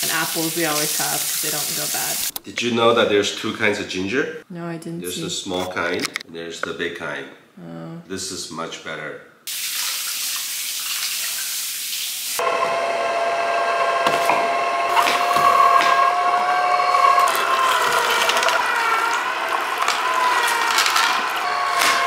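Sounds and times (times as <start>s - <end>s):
tap water running: 0.0s - 2.4s, 9.5s - 12.4s, 14.0s - 22.0s
juicer motor whine: 12.4s - 22.0s
vegetables crunching in juicer: 12.4s - 22.0s.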